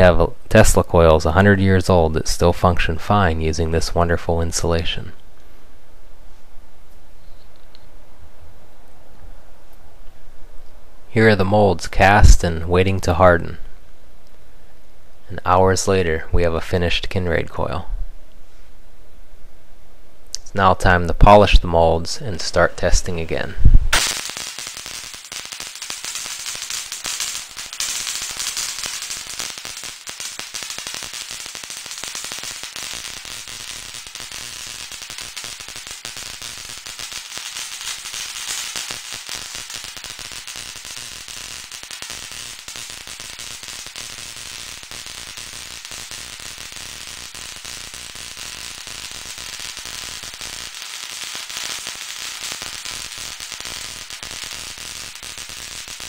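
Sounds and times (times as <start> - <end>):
faint steady hum: 0.0 - 23.9
tesla coil spark crackling: 22.2 - 56.0.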